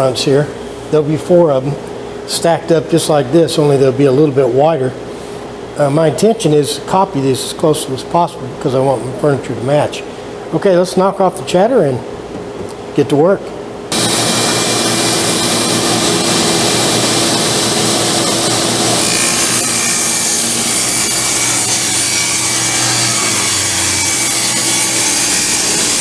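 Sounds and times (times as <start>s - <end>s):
table saw ripping wood: 13.9s - 26.0s.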